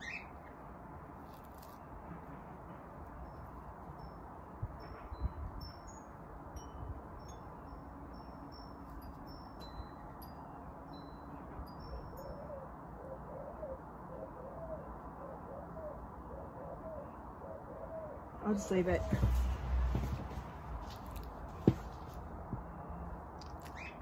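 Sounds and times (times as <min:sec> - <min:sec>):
bird calling: 0:00.0 - 0:00.5, 0:23.5 - 0:24.0.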